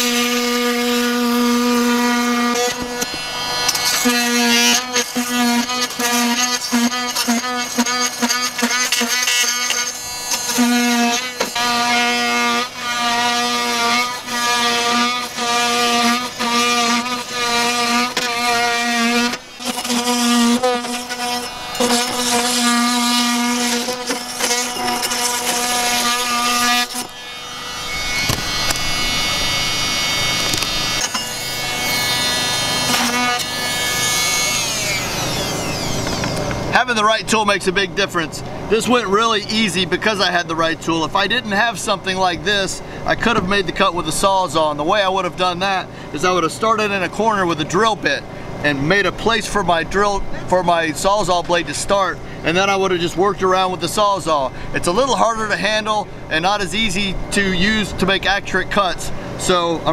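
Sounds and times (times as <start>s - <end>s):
oscillating multi-tool cutting wood: 0.0s - 37.8s.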